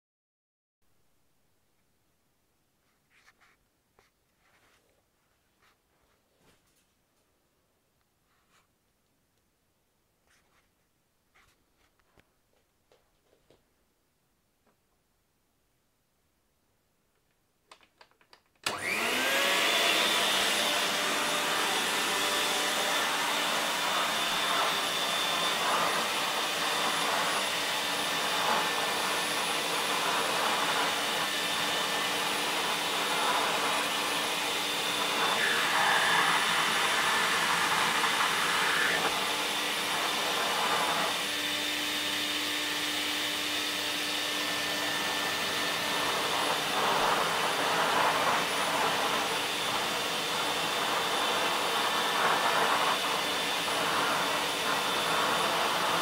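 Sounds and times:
vacuum cleaner motor running: 0:18.6 - 0:56.0.

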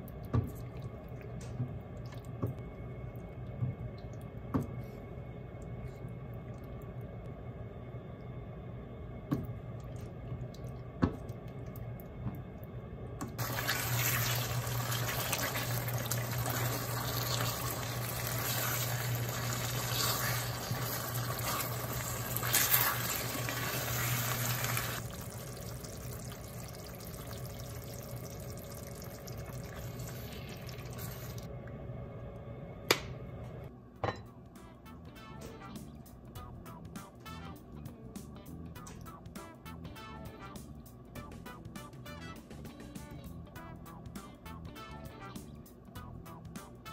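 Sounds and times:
low hum: 0:00.0 - 0:46.5
sauce bubbling in a pan: 0:13.4 - 0:31.5.

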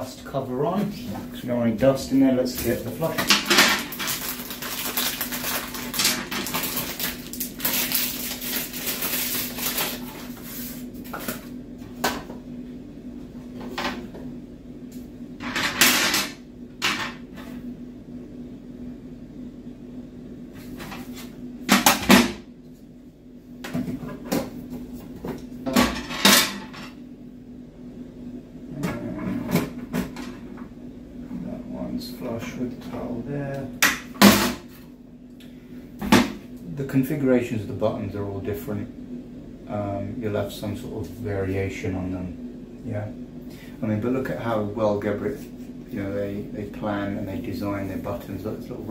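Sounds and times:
steady low hum: 0:00.0 - 0:48.9
plastic parts rustling and rattling: 0:03.1 - 0:10.4.

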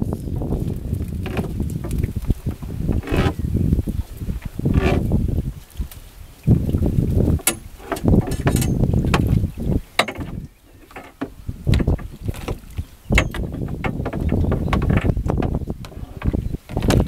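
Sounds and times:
wind buffeting microphone: 0:00.0 - 0:17.0
net hoops clicking and knocking: 0:07.4 - 0:09.2.

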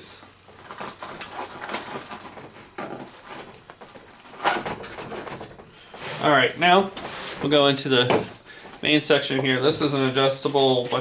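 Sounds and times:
metal keys clinking: 0:00.2 - 0:05.7.

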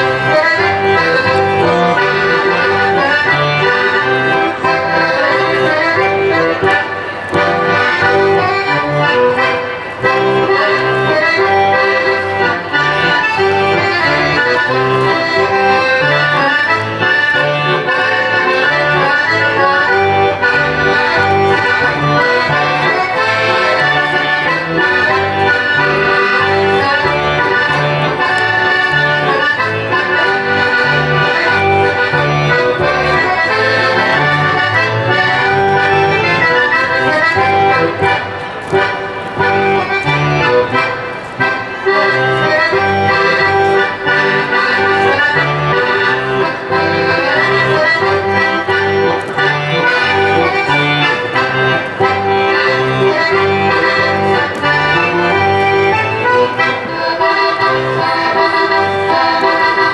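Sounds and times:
oom-pah bass line: 0:00.0 - 0:38.1
accordion folk dance tune: 0:00.0 - 0:59.9.

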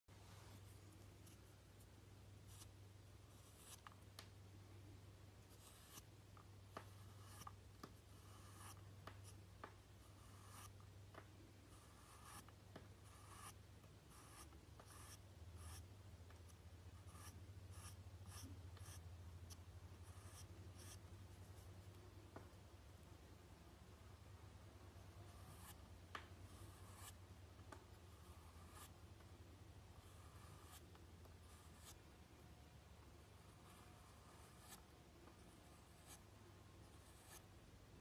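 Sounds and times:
tool scratching on porcelain: 0:10.0 - 0:10.8, 0:11.7 - 0:15.9.

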